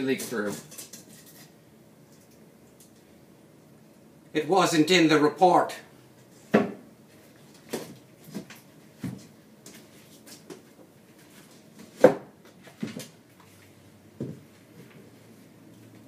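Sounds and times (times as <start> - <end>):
knocks and clunks in cabinet: 6.5 - 6.8.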